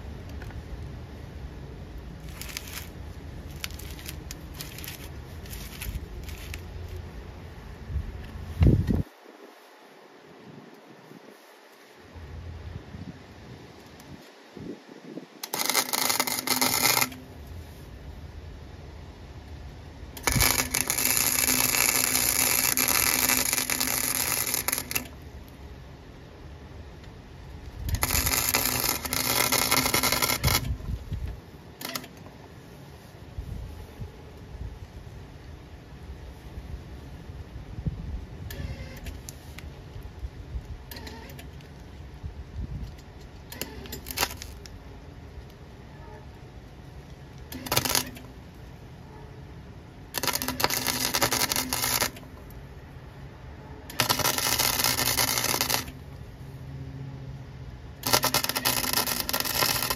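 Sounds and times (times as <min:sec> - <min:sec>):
steady low hum: 0:00.0 - 0:59.9
welder arc crackling: 0:01.8 - 0:07.2, 0:15.4 - 0:17.8, 0:19.4 - 0:25.8, 0:27.0 - 0:32.2, 0:43.4 - 0:44.8, 0:47.0 - 0:48.6, 0:50.1 - 0:52.6, 0:53.9 - 0:56.2, 0:57.9 - 0:59.9.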